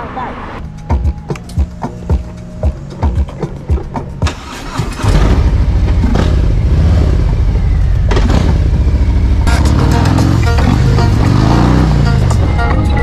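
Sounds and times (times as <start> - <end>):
motorcycle engine running: 4.9 - 13.0.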